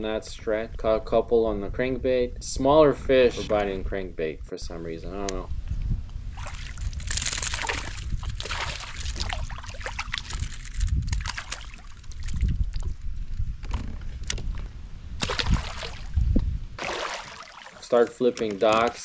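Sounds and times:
low wind rumble: 0.0s - 17.5s
water splashing and sloshing: 6.2s - 19.0s.

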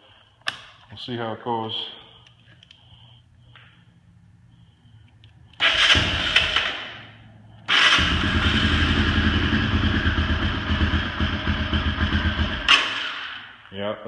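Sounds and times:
electric starter cranking: 5.5s - 10.6s
engine idling: 5.6s - 12.9s.

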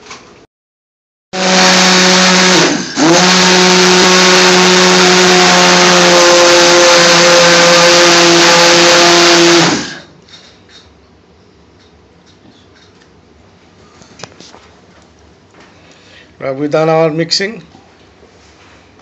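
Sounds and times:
immersion blender motor running: 1.4s - 10.1s.

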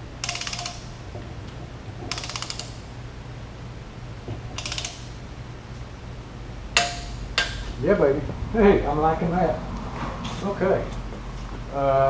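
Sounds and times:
torque wrench ratchet clicking: 0.2s - 1.0s, 2.1s - 2.8s, 4.6s - 5.1s.

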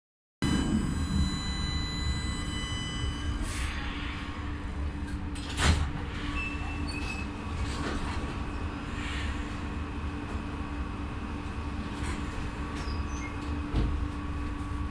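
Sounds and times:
door opening tone: 0.4s - 4.0s, 5.1s - 8.1s
high multi-tone whine: 0.4s - 6.9s
tram rumbling to a halt: 0.4s - 14.9s.

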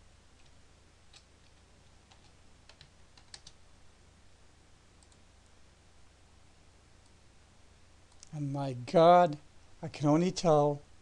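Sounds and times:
faint keyboard typing: 0.4s - 3.6s, 4.9s - 5.3s, 8.1s - 8.4s.

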